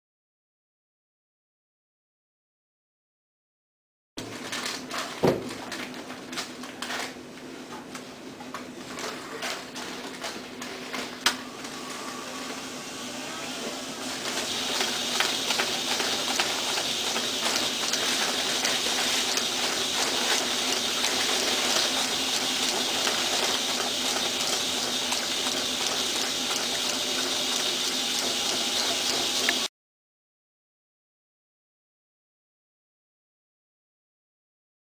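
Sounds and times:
envelope machine humming: 8.6s - 29.7s
rustling whir with small ticks: 14.4s - 29.7s.

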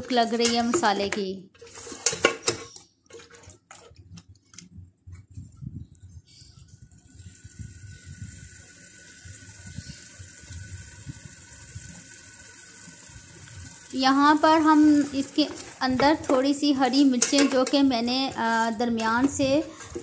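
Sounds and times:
metal ladle scraping a metal pot: 1.5s - 4.1s, 17.1s - 20.0s
meat sizzling in oil: 7.1s - 20.0s.

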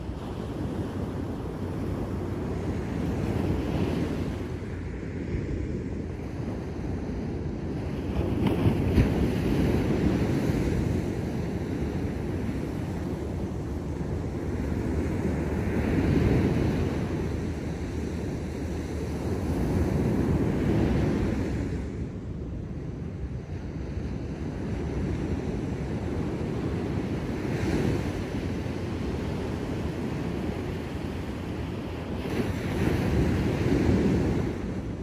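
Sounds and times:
ocean waves breaking: 0.0s - 35.0s.

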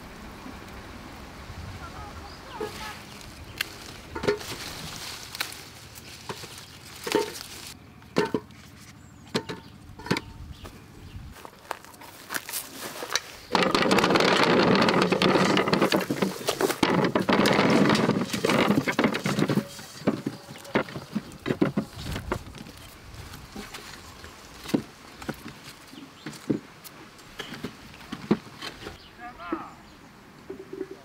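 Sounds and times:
fruit tumbling into wooden crate: 12.2s - 26.7s.

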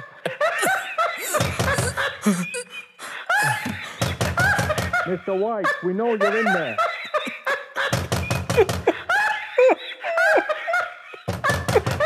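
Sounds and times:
man laughing wildly: 0.0s - 12.0s
heavy banging on a door: 1.4s - 2.0s, 4.0s - 5.0s, 7.9s - 9.0s, 11.2s - 12.0s.

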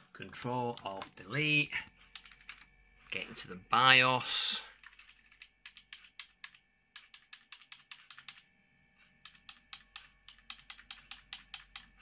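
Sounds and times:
power supply fan whine: 0.0s - 12.0s
keyboard key tapped rapidly: 2.1s - 2.7s, 4.8s - 8.4s, 9.2s - 12.0s.

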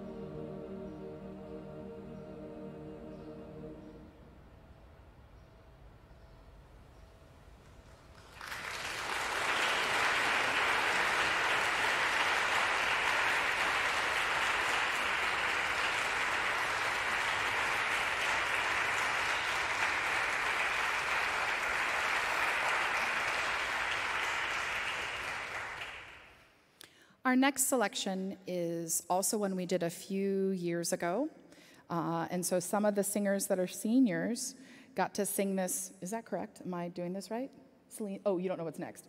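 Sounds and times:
audience applause: 8.1s - 26.4s.

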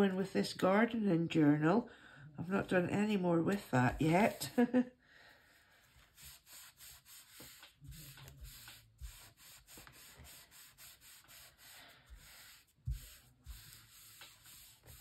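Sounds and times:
paper rubbing on paper: 5.9s - 15.0s.

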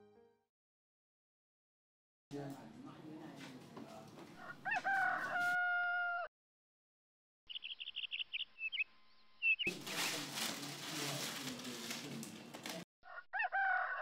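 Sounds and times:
rooster crowing: 4.4s - 6.3s, 13.0s - 14.0s
small birds chirping: 7.5s - 10.2s.

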